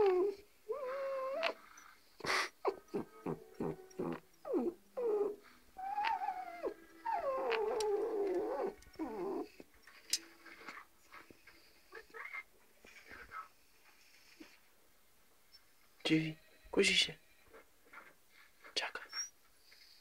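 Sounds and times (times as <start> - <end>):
dog whimpering and whining: 0.0 - 9.7, 19.0 - 19.4.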